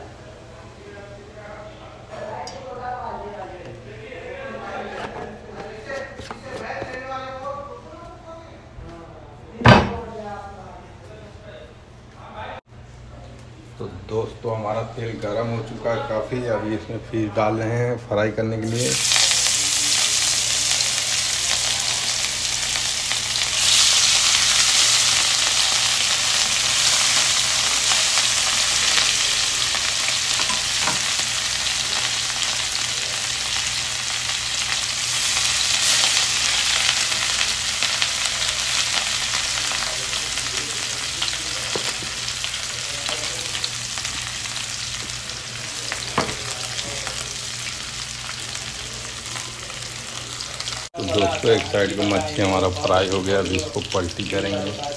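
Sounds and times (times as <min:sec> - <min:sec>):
fish sizzling in hot oil: 0:18.6 - 0:54.9.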